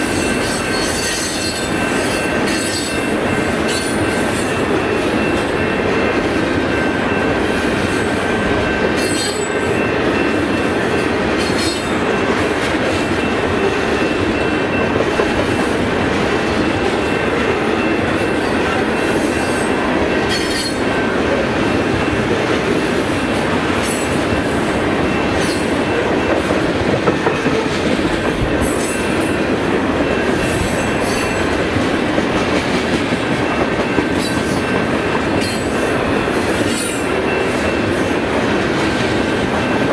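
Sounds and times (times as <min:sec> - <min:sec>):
train wheels squealing: 0:00.0 - 0:05.8, 0:09.0 - 0:10.0, 0:11.4 - 0:12.0, 0:20.3 - 0:20.8
freight train rumbling past: 0:00.0 - 0:39.9.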